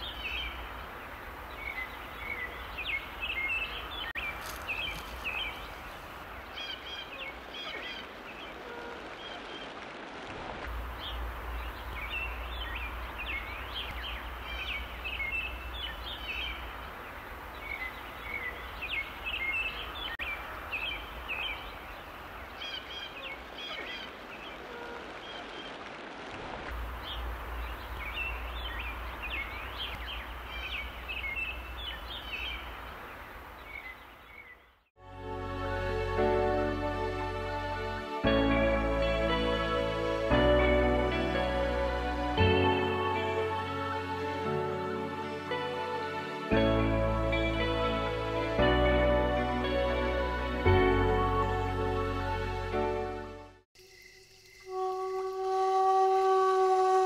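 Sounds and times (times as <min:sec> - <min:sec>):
small birds chirping: 0:00.0 - 0:09.8, 0:10.8 - 0:25.9, 0:26.8 - 0:34.9
low wind rumble: 0:00.0 - 0:34.2
outdoor hiss: 0:00.0 - 0:34.9, 0:53.8 - 0:57.0.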